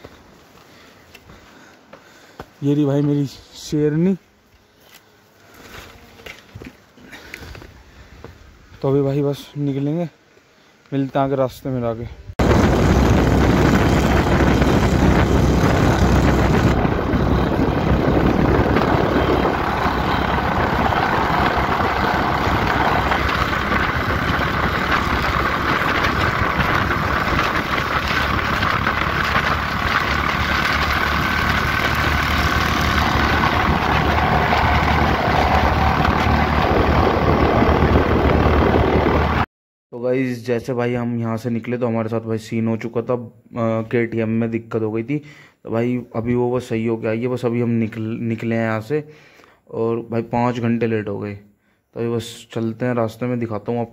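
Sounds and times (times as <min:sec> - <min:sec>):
motorcycle engine: 0:12.4 - 0:39.4
wind rush over microphone: 0:12.4 - 0:39.4.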